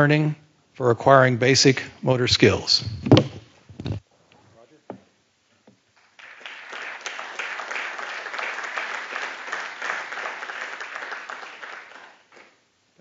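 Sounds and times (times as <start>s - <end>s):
audience applauding: 6.0s - 12.6s.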